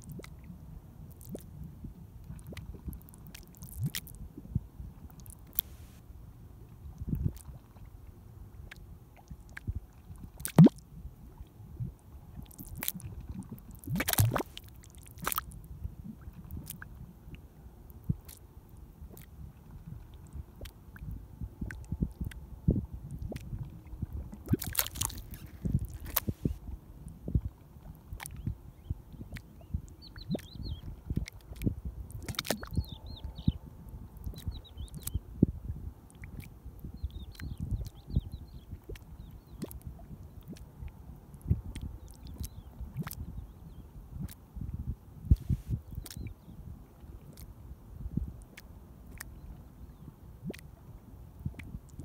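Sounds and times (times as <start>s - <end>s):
mud bubbling and plopping: 1.1s - 1.5s, 2.3s - 4.2s, 10.4s - 10.8s, 12.4s - 15.5s, 23.1s - 26.6s, 28.0s - 28.5s, 30.1s - 33.0s, 45.3s - 46.2s, 50.4s - 50.7s
mud bubble bursting: 10.4s - 10.8s, 13.7s - 15.4s, 24.4s - 26.6s.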